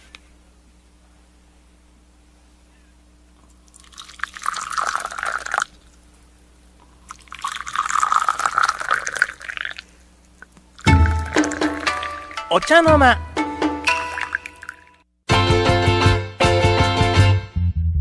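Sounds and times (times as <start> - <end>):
liquid pouring: 3.4 - 6.1, 6.9 - 12.5, 13.9 - 15.0.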